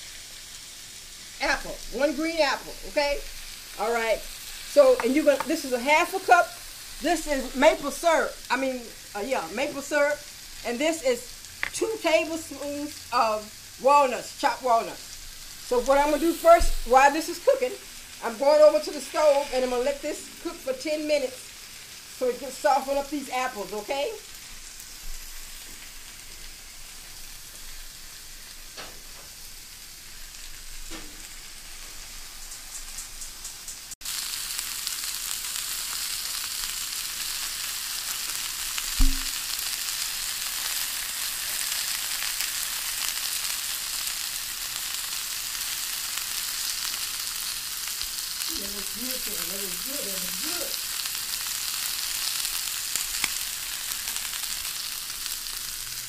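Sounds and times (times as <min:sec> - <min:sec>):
meat sizzling on a grill: 0:00.0 - 0:56.0
knock: 0:39.0 - 0:39.3.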